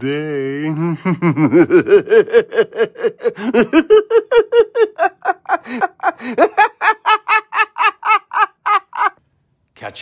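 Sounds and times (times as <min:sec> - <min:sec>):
man cackling maniacally: 0:00.7 - 0:09.2.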